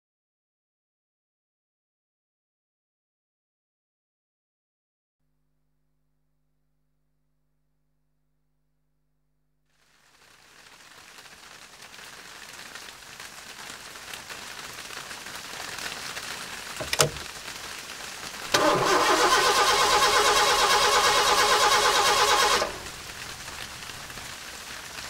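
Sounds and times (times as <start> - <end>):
sharp click: 16.8 - 17.3
engine running with rapid pulse: 18.5 - 23.1
hiss: 18.5 - 25.0.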